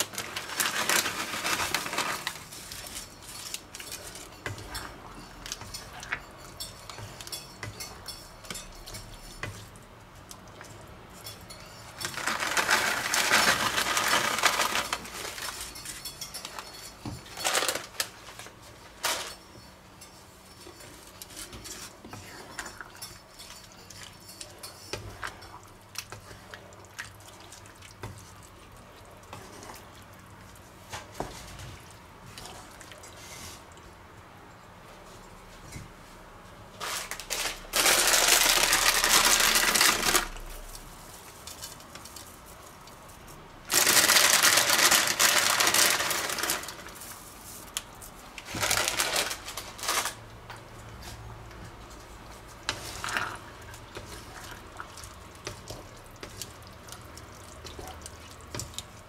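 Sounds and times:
plastic bag rustling: 0:00.0 - 0:06.1, 0:11.9 - 0:19.6, 0:36.8 - 0:43.1, 0:43.7 - 0:55.1
wooden spatula scraping a pan: 0:11.2 - 0:26.7, 0:51.0 - 0:57.0.

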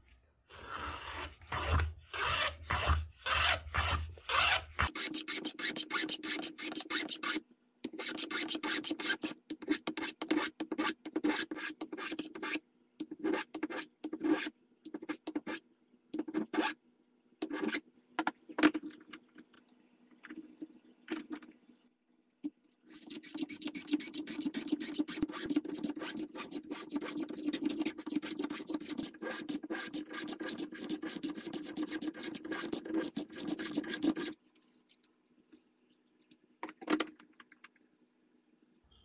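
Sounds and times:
hand plane rasping on wood: 0:23.0 - 0:34.3.

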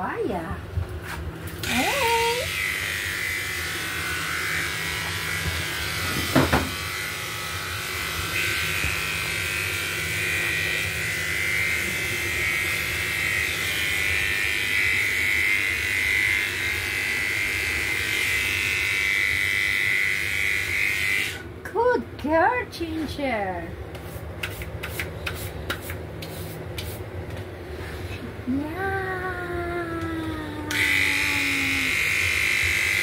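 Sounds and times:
electric clippers buzzing: 0:01.0 - 0:21.5, 0:29.9 - 0:33.0.

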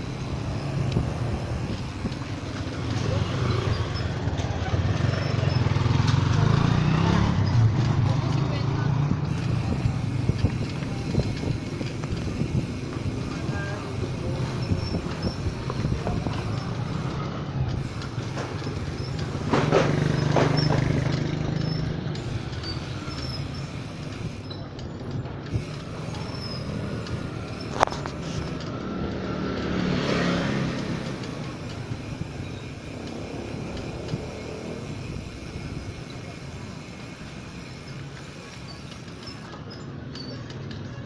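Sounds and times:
bike rattling: 0:00.0 - 0:41.0
tyres rolling on rough concrete: 0:00.0 - 0:41.0
wind on microphone: 0:09.0 - 0:18.0.

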